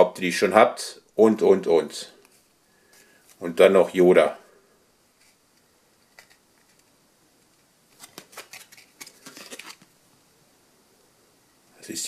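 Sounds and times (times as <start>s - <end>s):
cardboard card clicks and rustles: 5.2s - 10.0s.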